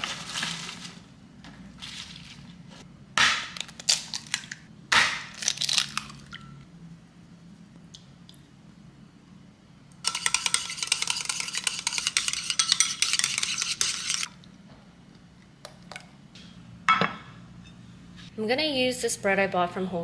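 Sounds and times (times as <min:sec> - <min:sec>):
leaves rustling in plastic container: 0:00.0 - 0:02.8.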